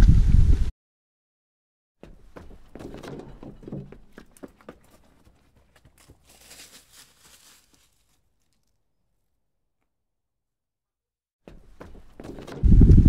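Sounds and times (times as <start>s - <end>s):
wind rumble on microphone: 0.0s - 0.7s, 12.4s - 13.0s
footsteps crunching on stony trail: 2.0s - 8.7s.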